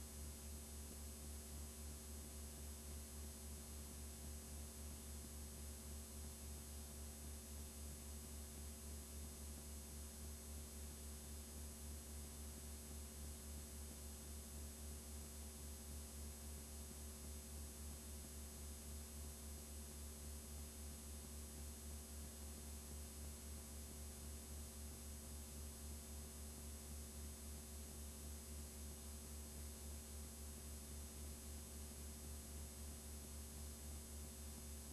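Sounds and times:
low electrical hum: 0.0s - 34.9s.

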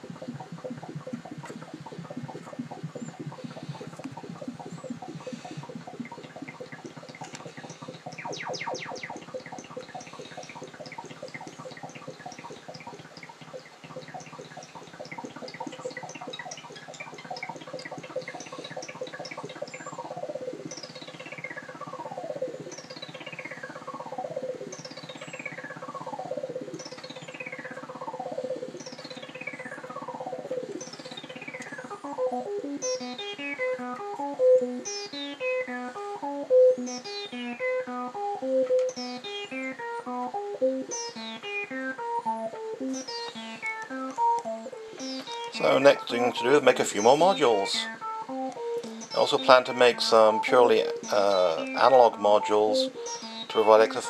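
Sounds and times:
falling synth swoop: 0.0s - 23.0s
steady synth tone: 0.0s - 35.2s
synth note sequence: 0.0s - 35.2s, 36.7s - 54.0s
buzzy pulsing synth tone: 0.0s - 54.0s.

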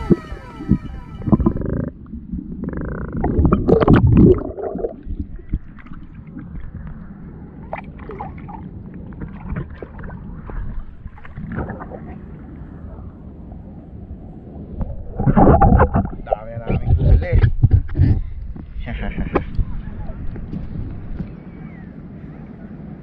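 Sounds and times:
water lapping and splashing: 0.0s - 13.0s
muffled underwater sloshing: 0.0s - 22.3s.

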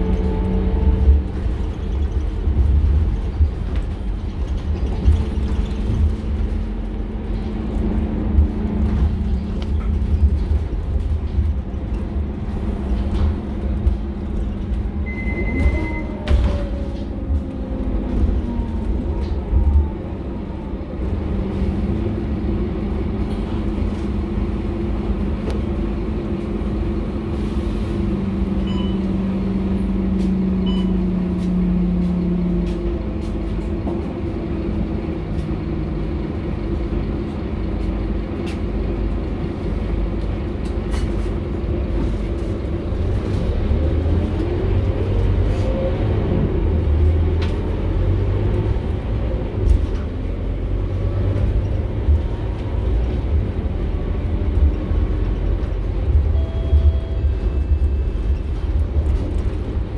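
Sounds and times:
bus engine drone inside cabin: 0.0s - 59.9s
short high beep: 15.1s - 16.1s, 56.3s - 57.8s.

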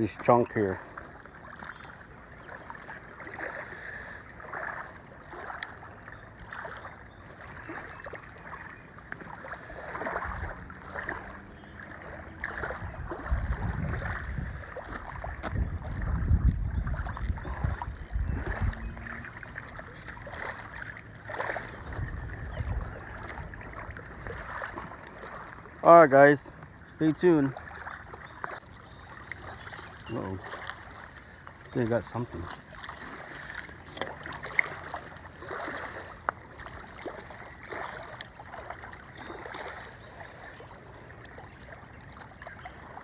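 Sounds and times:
small waves lapping on rocks: 0.0s - 43.0s
wind rumbling on microphone: 10.0s - 25.4s.

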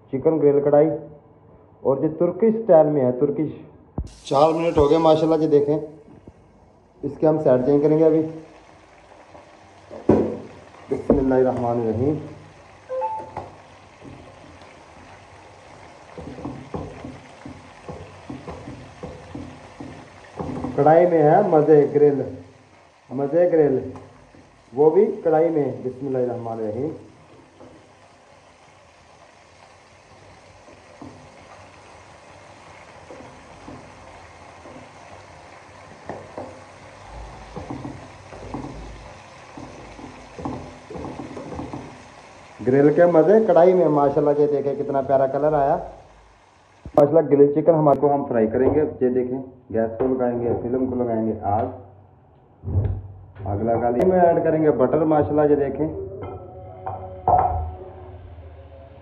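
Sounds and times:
chicken frying in oil: 4.0s - 6.0s, 7.0s - 47.0s
utensil knocking against pan: 16.1s - 20.9s, 37.5s - 42.0s.

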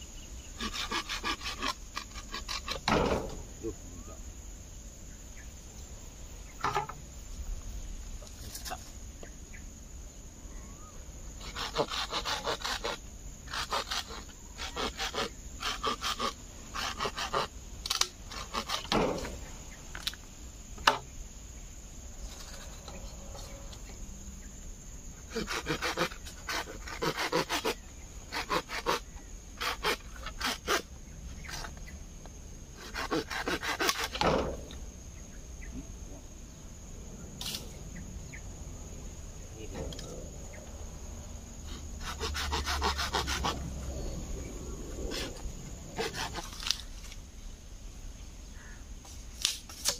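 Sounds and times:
insects droning: 0.0s - 49.9s
hand saw cutting bamboo: 0.6s - 3.3s, 11.4s - 19.3s, 25.3s - 31.7s, 32.8s - 34.5s, 42.0s - 43.6s, 46.0s - 46.8s.

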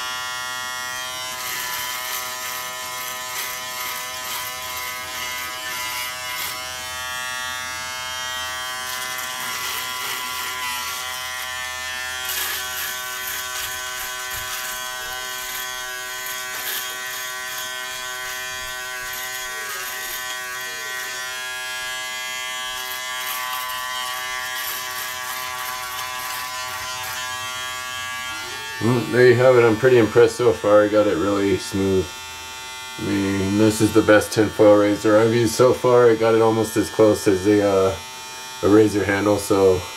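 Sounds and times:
electric shaver buzzing: 0.0s - 39.9s.

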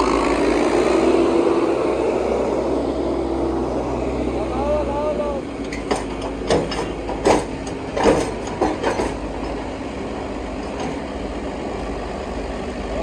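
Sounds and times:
tractor engine running: 0.0s - 13.0s
clattering knocks: 5.6s - 9.6s.

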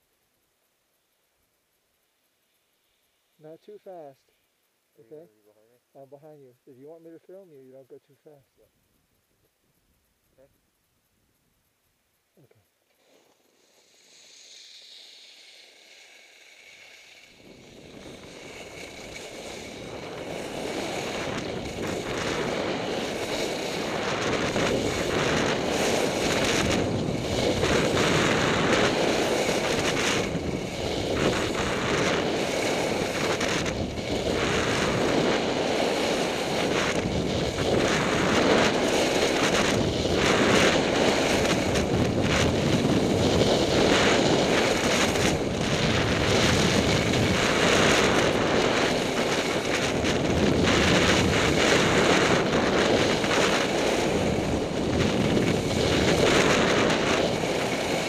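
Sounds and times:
skis scraping on snow: 12.9s - 58.0s
wind rushing over microphone: 16.7s - 58.0s.

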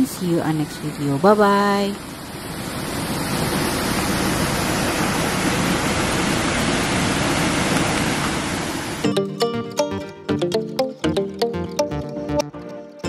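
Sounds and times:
river water rushing: 2.0s - 9.0s.

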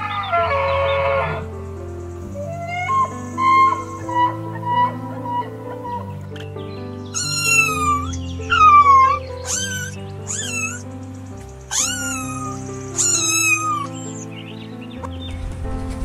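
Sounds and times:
soft background music: 0.0s - 16.0s
cat meowing: 7.1s - 10.8s, 11.7s - 14.2s.

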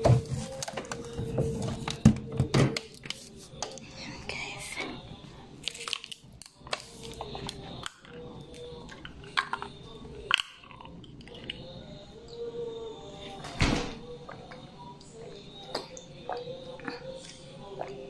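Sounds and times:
refrigerator door shutting: 13.4s - 14.0s.

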